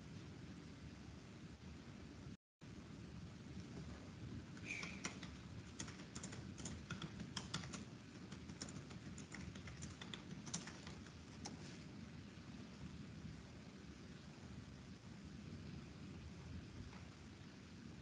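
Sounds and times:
low steady hum: 0:00.0 - 0:18.0
keyboard key clicks: 0:04.6 - 0:11.6.

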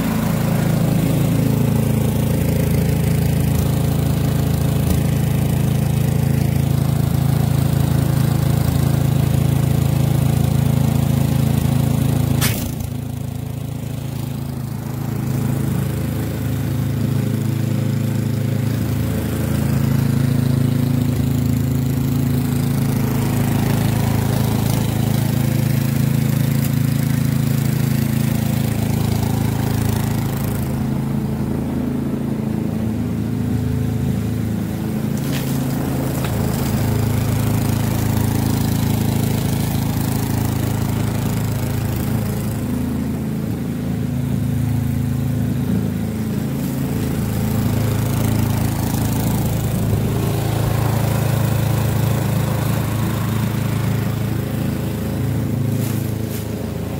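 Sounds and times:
snowblower engine running: 0:00.0 - 0:56.9
sharp click: 0:12.4 - 0:12.8.

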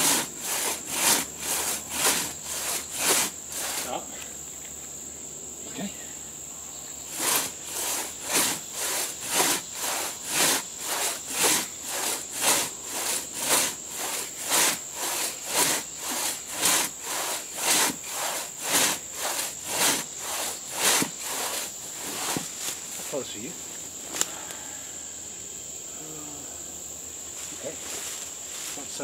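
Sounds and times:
crosscut saw rasping through wood: 0:00.0 - 0:04.0, 0:07.1 - 0:23.1.

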